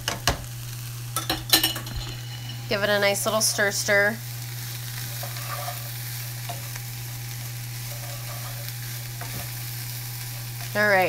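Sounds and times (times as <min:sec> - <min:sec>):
vegetables sizzling in a skillet: 0:00.0 - 0:11.0
utensil scraping pan: 0:01.4 - 0:03.8, 0:05.0 - 0:06.8, 0:07.8 - 0:09.6.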